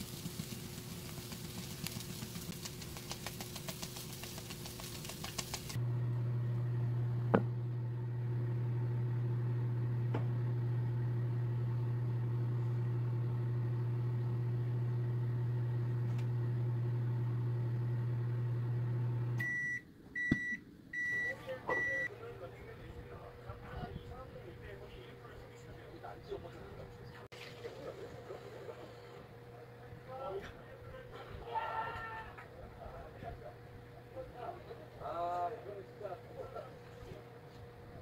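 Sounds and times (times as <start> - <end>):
corn sizzling in a frying pan: 0.0 - 5.8
microwave oven humming: 0.0 - 26.4, 27.0 - 38.0.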